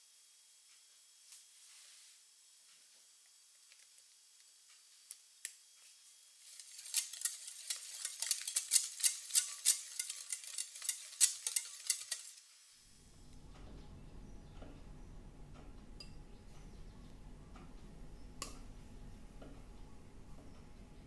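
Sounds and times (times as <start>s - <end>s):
whisk ticking against glass bowl: 6.6s - 12.4s.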